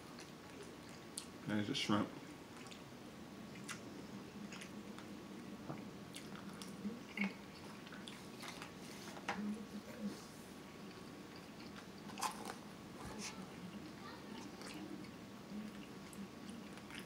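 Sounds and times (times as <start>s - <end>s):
person chewing food: 0.0s - 1.4s, 2.5s - 2.9s, 3.5s - 5.5s, 6.1s - 9.2s, 10.7s - 17.0s.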